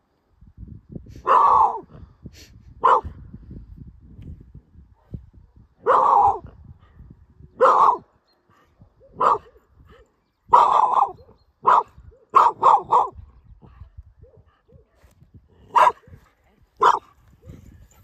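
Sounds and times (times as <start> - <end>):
dog barking: 1.2 - 1.9, 2.8 - 3.1, 5.8 - 6.5, 7.6 - 8.1, 9.0 - 9.6, 10.5 - 13.2, 15.7 - 17.6.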